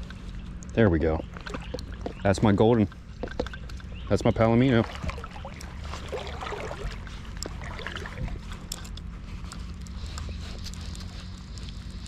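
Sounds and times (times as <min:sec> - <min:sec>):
stream water rushing: 0:04.6 - 0:08.6.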